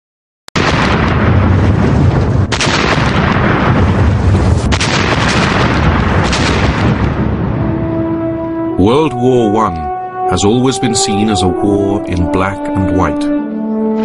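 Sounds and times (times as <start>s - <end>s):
artillery guns firing: 0.6s - 8.0s.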